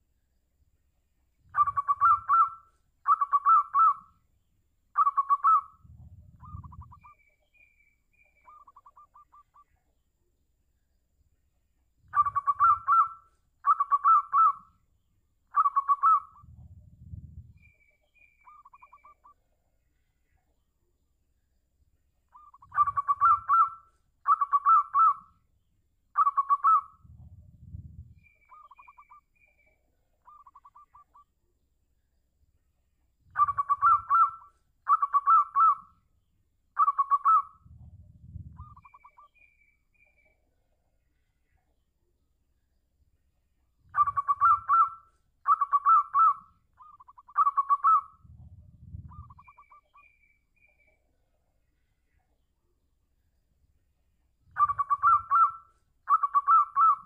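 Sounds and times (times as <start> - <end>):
dove cooing: 1.5 - 4.1, 5.0 - 7.2, 12.1 - 14.6, 15.5 - 17.8, 22.4 - 25.2, 26.2 - 29.2, 30.2 - 31.2, 33.3 - 35.8, 36.8 - 39.3, 43.9 - 49.8, 54.5 - 57.0
low rumble: 5.9 - 7.0, 16.4 - 17.6, 27.1 - 28.2, 37.7 - 38.8, 48.2 - 49.4.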